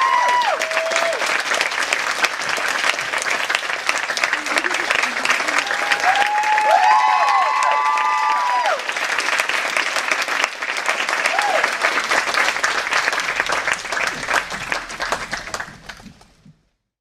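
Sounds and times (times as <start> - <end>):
people whooping: 0.0 - 1.4, 4.3 - 8.9, 11.1 - 16.0
audience applauding: 0.0 - 16.8.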